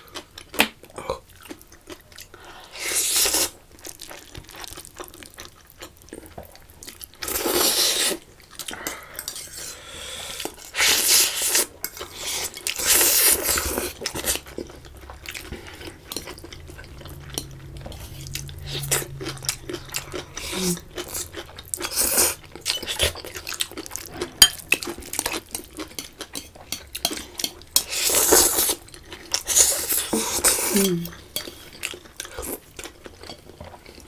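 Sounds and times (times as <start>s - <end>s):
metal cutlery clinking on bowls: 24.4s - 28.7s.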